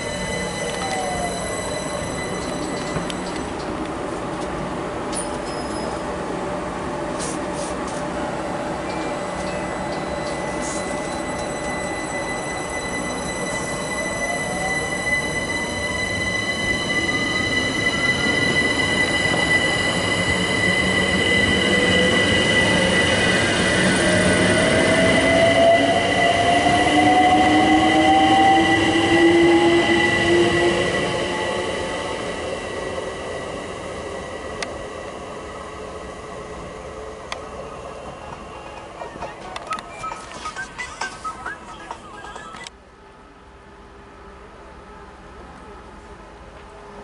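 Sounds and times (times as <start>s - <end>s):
electric train motor whine: 0.0s - 3.7s
train wheel and running noise: 0.0s - 47.0s.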